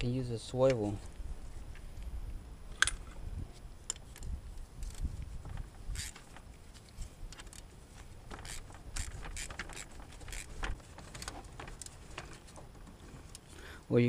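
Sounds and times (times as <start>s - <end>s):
hand ratchet clicking: 5.9s - 6.2s, 8.4s - 10.5s.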